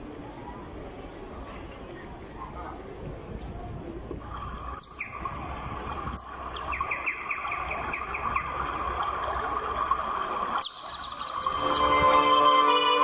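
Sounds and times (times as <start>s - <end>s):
small birds chirping: 4.6s - 12.0s.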